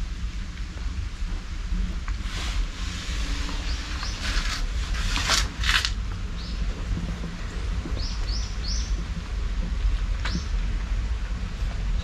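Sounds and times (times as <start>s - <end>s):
heavy rain: 0.0s - 12.0s
small birds chirping: 3.5s - 4.6s, 6.3s - 6.7s, 7.9s - 9.1s, 10.2s - 10.6s.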